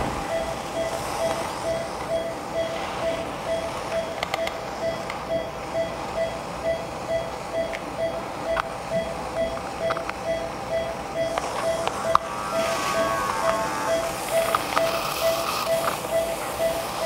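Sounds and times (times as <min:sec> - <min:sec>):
patient monitor beeping: 0:00.0 - 0:17.0
dental instruments clicking: 0:11.3 - 0:16.8.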